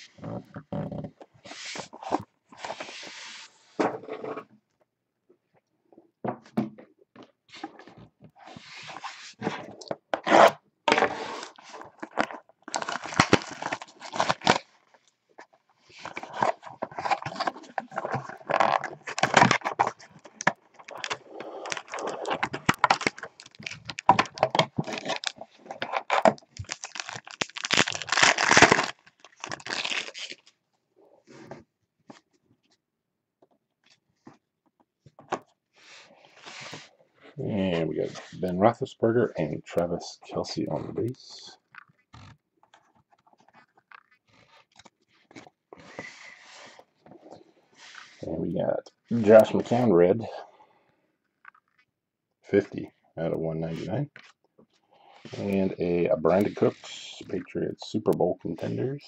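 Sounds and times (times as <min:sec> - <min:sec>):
cards being slid and handled: 0:01.4 - 0:03.8, 0:08.4 - 0:11.9, 0:35.8 - 0:36.9, 0:45.8 - 0:46.8, 0:47.8 - 0:48.2
foil pack tearing and crinkling: 0:10.3 - 0:14.8, 0:15.9 - 0:30.6
cardboard box being opened: 0:16.0 - 0:30.4.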